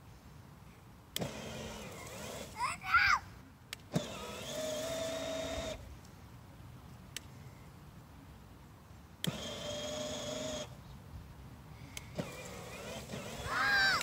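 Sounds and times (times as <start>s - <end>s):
electric motor whining: 4.0s - 5.8s, 9.2s - 10.7s, 12.1s - 14.0s.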